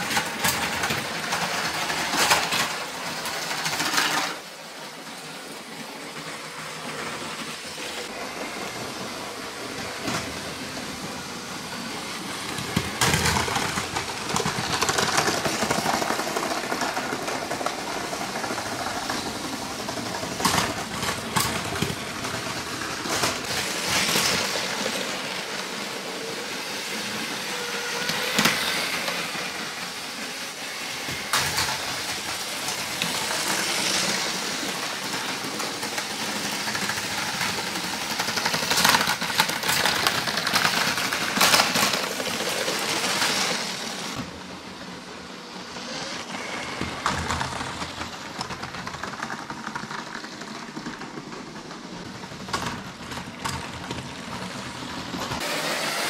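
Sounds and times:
toy train wheels clicking and rattling: 0:00.0 - 0:05.2, 0:06.6 - 0:44.3
toy train motors whirring: 0:00.0 - 0:56.0.

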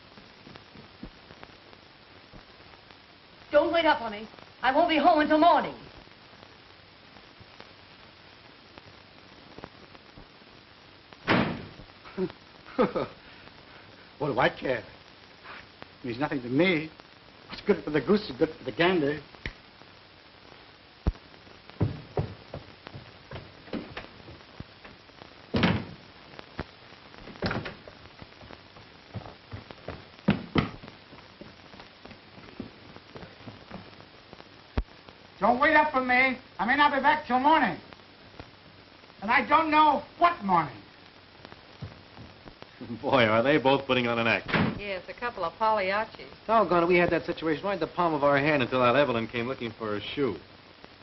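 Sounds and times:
film soundtrack hiss: 0:00.0 - 0:51.0
faint clicks: 0:19.3 - 0:19.6
dull thumps and knocks: 0:21.8 - 0:24.4, 0:29.1 - 0:30.9.

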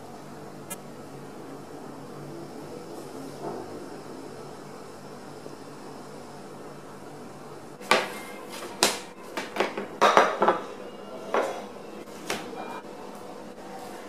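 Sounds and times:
kitchenware clinking and knocking: 0:08.9 - 0:10.7.

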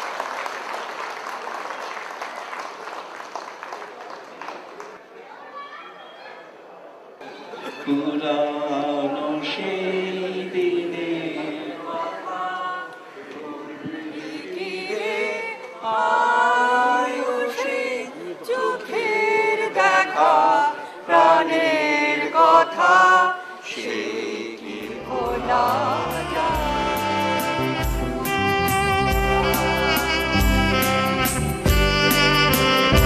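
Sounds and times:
men singing unaccompanied: 0:07.9 - 0:27.8
instrumental music with bass: 0:25.2 - 0:33.0.

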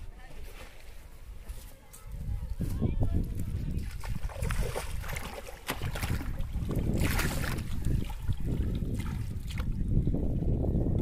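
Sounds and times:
wind buffeting microphone: 0:01.1 - 0:11.0
water splashing and sloshing: 0:02.6 - 0:11.0.

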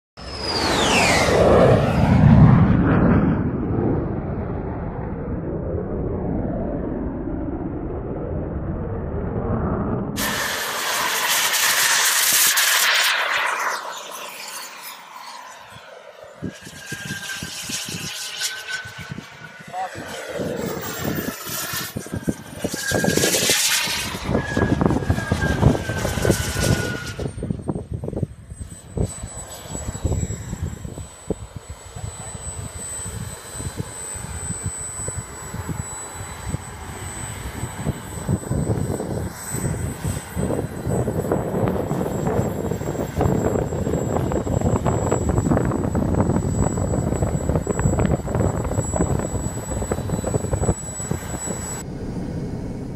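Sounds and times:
model jet turbine whine: 0:00.2 - 0:52.9
wind buffeting microphone: 0:18.8 - 0:52.9.

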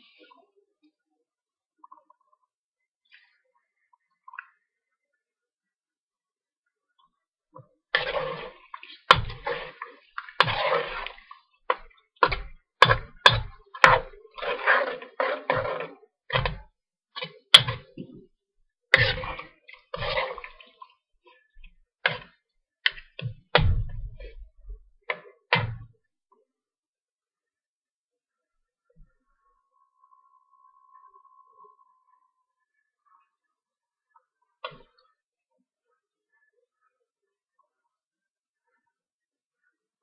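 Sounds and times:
metal spoon scraping a wok: 0:12.9 - 0:16.0.

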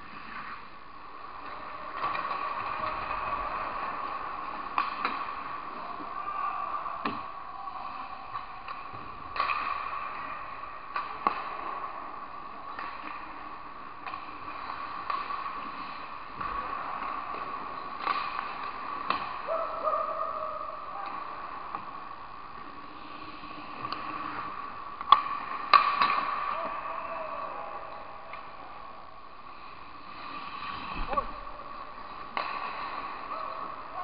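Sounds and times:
hockey sticks clacking on puck: 0:01.4 - 0:05.9, 0:08.3 - 0:13.4, 0:14.0 - 0:19.6, 0:25.0 - 0:26.8, 0:32.0 - 0:34.0
faint shouts: 0:05.8 - 0:08.7, 0:19.4 - 0:21.0, 0:26.5 - 0:29.1.

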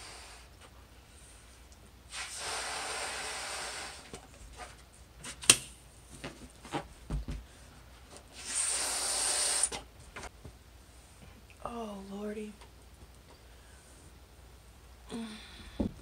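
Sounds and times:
person blowing into a balloon: 0:00.0 - 0:00.5, 0:02.1 - 0:04.8, 0:08.3 - 0:09.9
balloon rubbing and squeaking: 0:08.3 - 0:09.8.

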